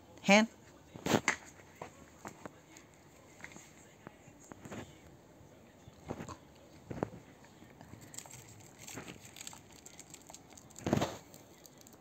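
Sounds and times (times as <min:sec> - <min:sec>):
dog chewing crunch: 0:06.0 - 0:12.0.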